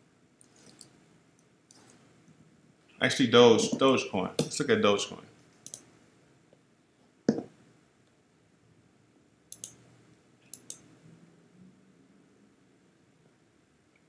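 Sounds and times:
computer mouse clicks: 0:05.6 - 0:05.9, 0:09.5 - 0:09.8, 0:10.5 - 0:10.9.

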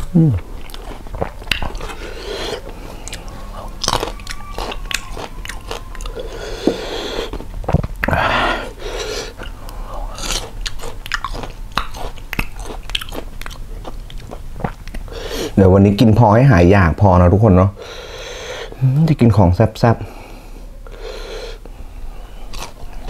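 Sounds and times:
chewing crisp fruit: 0:00.0 - 0:08.2, 0:08.9 - 0:15.1, 0:22.2 - 0:23.0.

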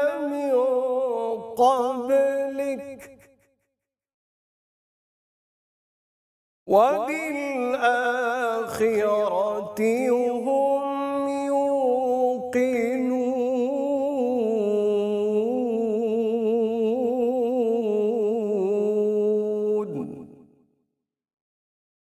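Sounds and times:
man chanting: 0:00.0 - 0:03.3, 0:06.7 - 0:20.4.

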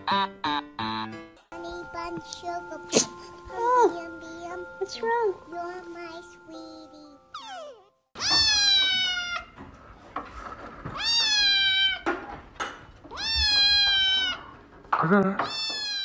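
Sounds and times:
kitten meowing: 0:07.4 - 0:09.5, 0:11.0 - 0:12.1, 0:13.1 - 0:14.5, 0:15.5 - 0:16.0.

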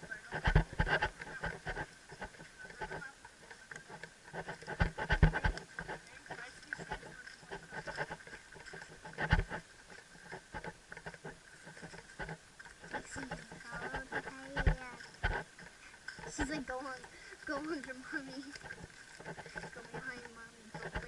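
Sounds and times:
horse hoofsteps on stubble: 0:00.0 - 0:21.0
camera knocking on helmet: 0:04.5 - 0:05.6.

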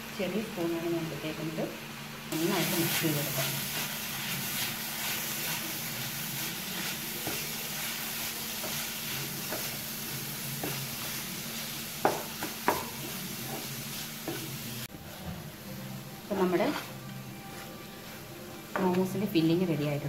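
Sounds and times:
food sizzling in a frying pan: 0:00.4 - 0:20.0
utensil knocking against pan: 0:12.0 - 0:12.9.

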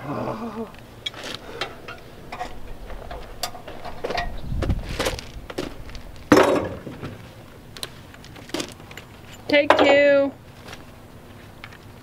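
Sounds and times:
metal tools clinking: 0:01.1 - 0:04.4, 0:08.5 - 0:10.2
loud metal clank: 0:06.3 - 0:07.0.

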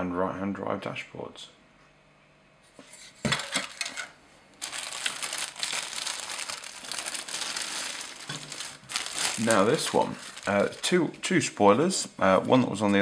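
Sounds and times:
plastic bag crinkling: 0:04.6 - 0:11.4.

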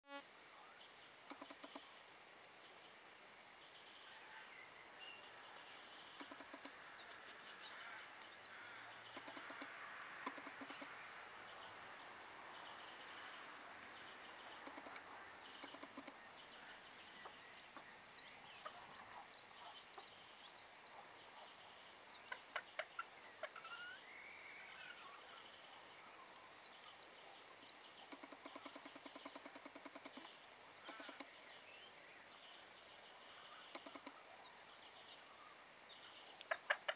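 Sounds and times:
hen clucking softly: 0:05.3 - 0:11.1, 0:13.2 - 0:20.2, 0:22.2 - 0:24.0, 0:28.0 - 0:31.3, 0:33.3 - 0:34.4, 0:36.2 - 0:36.9.

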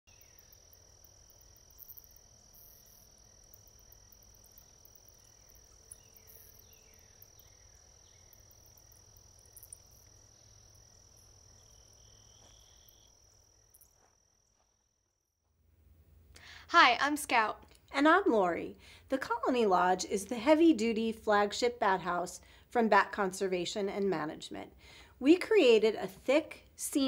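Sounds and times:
crickets trilling: 0:00.1 - 0:15.2.

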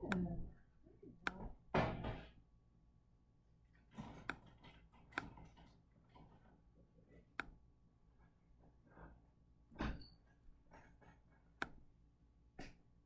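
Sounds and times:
computer mouse clicks: 0:04.1 - 0:05.4, 0:11.6 - 0:11.8.

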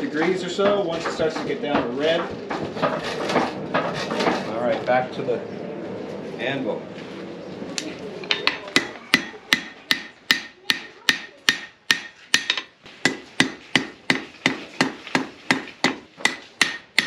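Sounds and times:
hammer striking iron on anvil: 0:08.3 - 0:17.0.

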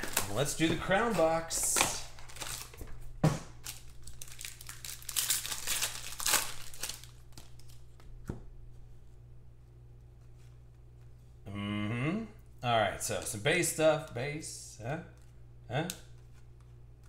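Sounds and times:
wrapper crinkling and tearing: 0:00.0 - 0:08.0.

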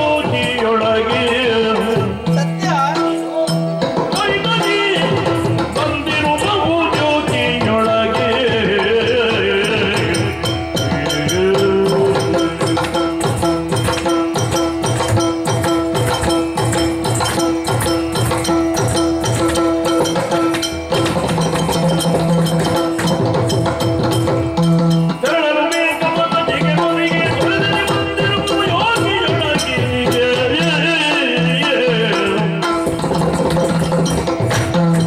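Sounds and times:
person singing: 0:00.0 - 0:13.3, 0:25.2 - 0:32.8
drums playing fast rhythm: 0:00.0 - 0:35.0.

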